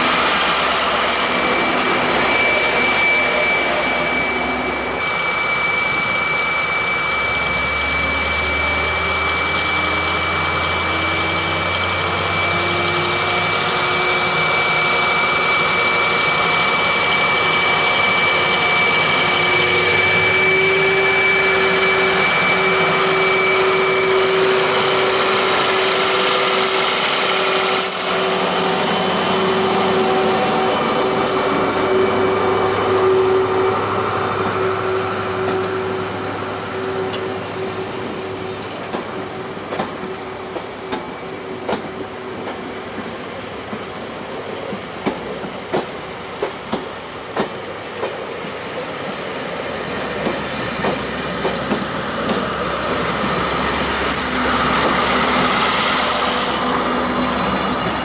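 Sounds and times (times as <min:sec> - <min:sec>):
steady high whine: 0:00.0 - 0:42.2.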